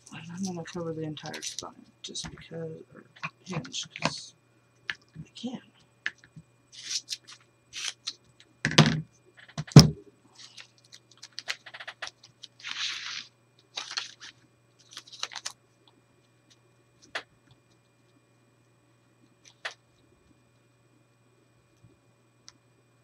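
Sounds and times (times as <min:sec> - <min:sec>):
thumps on table: 0:08.7 - 0:10.0.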